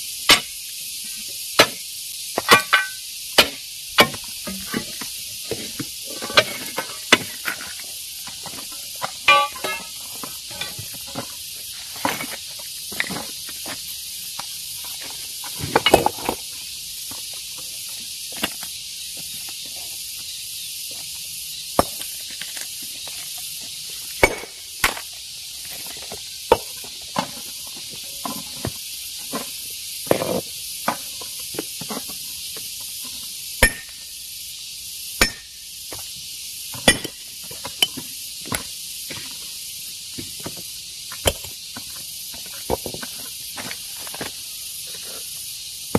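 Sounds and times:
steady high hiss: 0:00.0 - 0:45.9
hammer striking stone: 0:02.4 - 0:04.2, 0:09.3 - 0:09.9, 0:24.2 - 0:25.0, 0:33.6 - 0:34.0, 0:35.2 - 0:35.5, 0:36.9 - 0:37.2.

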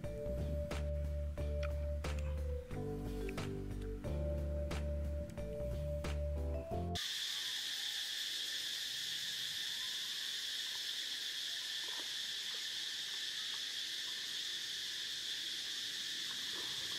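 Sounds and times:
insect chorus trilling: 0:07.0 - 0:16.9.

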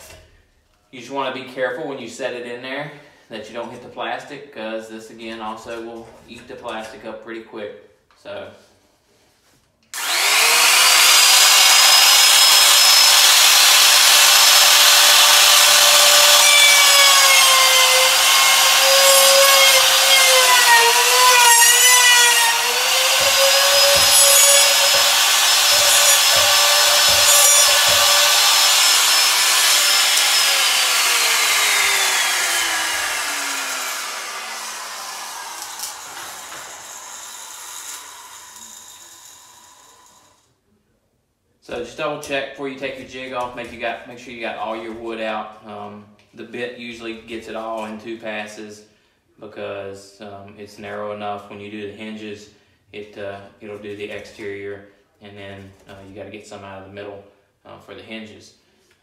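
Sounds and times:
router whining: 0:10.0 - 0:40.4.

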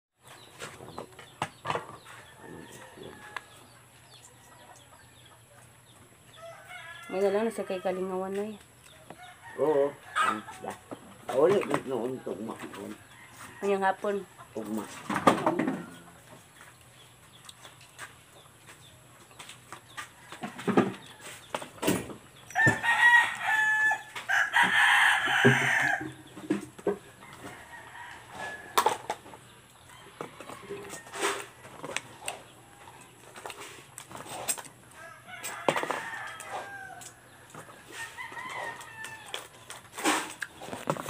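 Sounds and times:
rooster crowing: 0:02.4 - 0:03.7, 0:06.4 - 0:08.1, 0:22.5 - 0:26.2, 0:27.1 - 0:29.0, 0:34.9 - 0:39.4.

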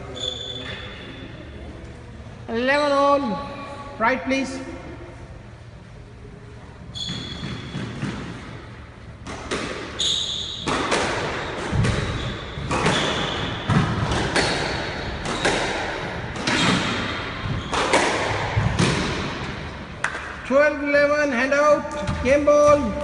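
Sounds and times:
squash ball hits: 0:07.0 - 0:20.4.

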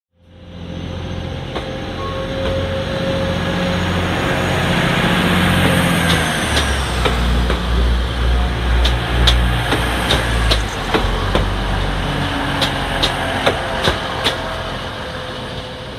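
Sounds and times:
train diesel engines working: 0:00.2 - 0:15.9
wheels clicking on rails: 0:04.4 - 0:14.8.

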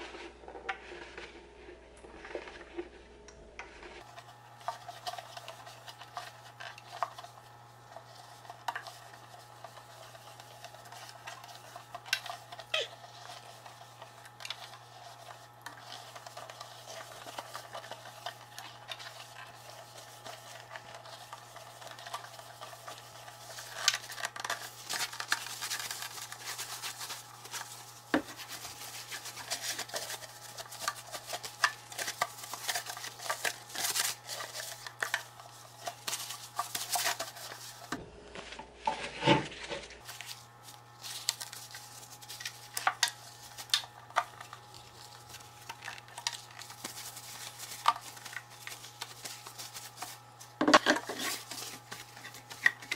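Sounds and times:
paper towel rubbing plastic jug: 0:03.8 - 0:52.9.

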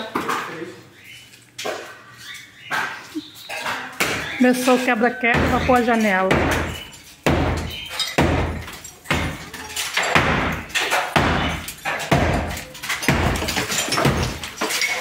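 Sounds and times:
hammer knocking tiles and brick: 0:04.0 - 0:15.0.

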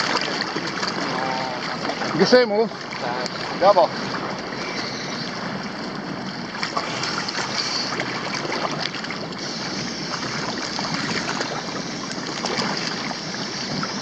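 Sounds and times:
rain falling on water: 0:00.0 - 0:04.6
sea water splashing and lapping: 0:00.0 - 0:14.0.

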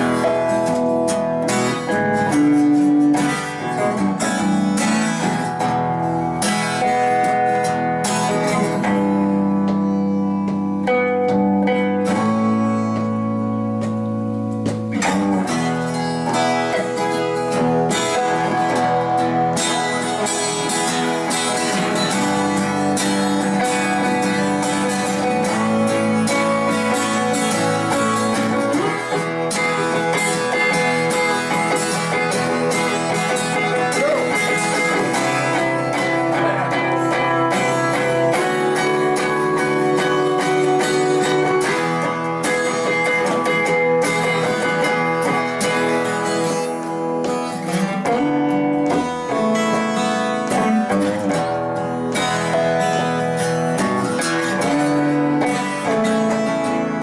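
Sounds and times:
acoustic guitar strumming: 0:00.0 - 0:57.0
electric guitar lead line: 0:00.0 - 0:57.0.

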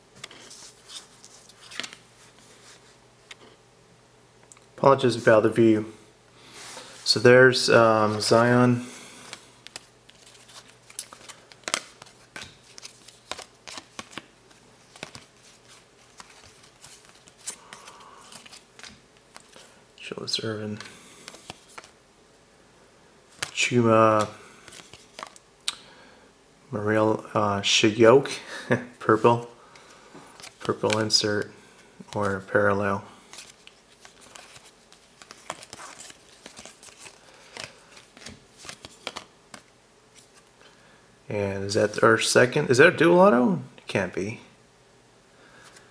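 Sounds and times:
cards sliding and rustling: 0:00.2 - 0:03.6, 0:07.8 - 0:19.7, 0:20.7 - 0:22.0, 0:23.3 - 0:25.4, 0:29.8 - 0:40.5.

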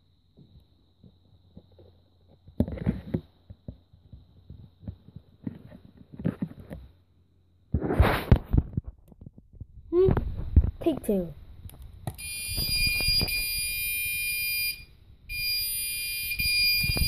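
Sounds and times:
faint high alarm tone: 0:12.2 - 0:17.0.

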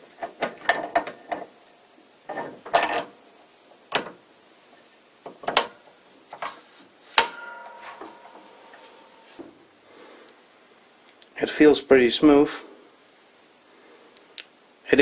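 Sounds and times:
metallic clinks and knocks: 0:07.2 - 0:09.4.

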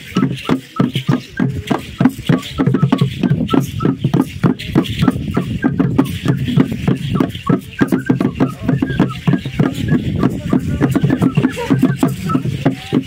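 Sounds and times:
hand drum beating fast rhythm: 0:00.0 - 0:13.0.

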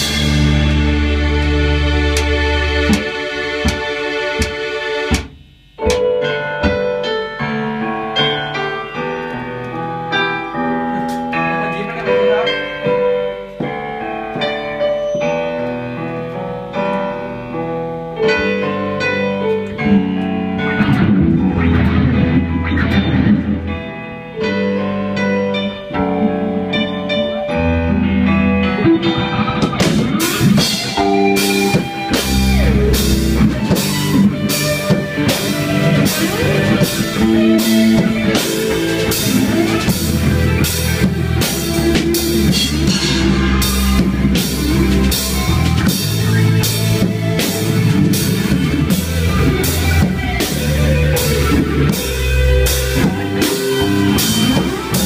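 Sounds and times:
drum kit beat: 0:00.0 - 0:07.4, 0:28.7 - 0:55.0
bass guitar: 0:00.0 - 0:55.0
keyboard: 0:00.0 - 0:55.0
rock band playing: 0:00.0 - 0:55.0.

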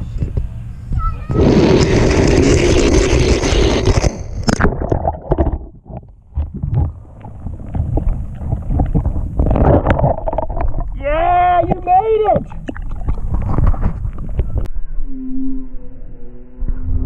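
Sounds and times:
muffled underwater sloshing: 0:03.7 - 0:14.7.

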